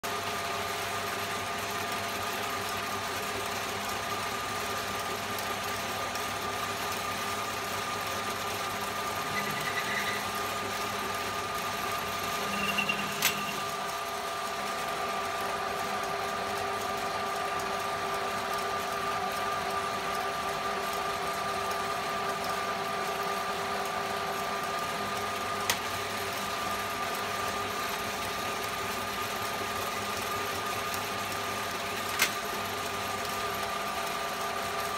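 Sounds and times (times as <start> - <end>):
metal lathe whining: 6.7 - 15.3.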